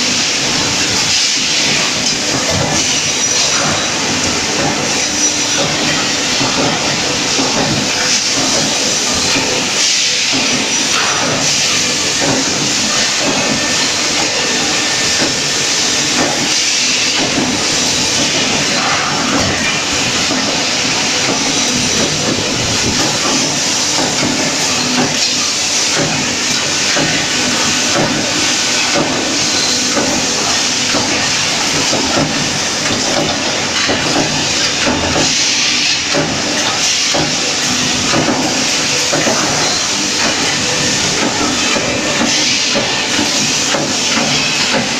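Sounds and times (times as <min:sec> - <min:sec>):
welding hissing and crackling: 0:00.0 - 0:44.9.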